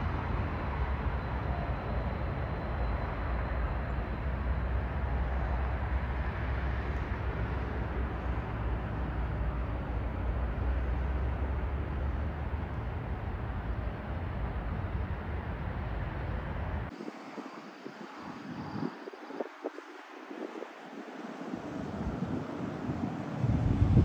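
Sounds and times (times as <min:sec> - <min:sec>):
distant jet engine rushing: 0:00.0 - 0:24.0
low rumble: 0:23.4 - 0:24.0.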